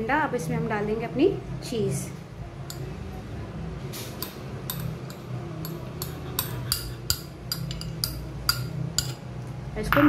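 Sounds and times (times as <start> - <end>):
metal spoon clinking ceramic bowl: 2.6 - 2.9, 4.2 - 9.3.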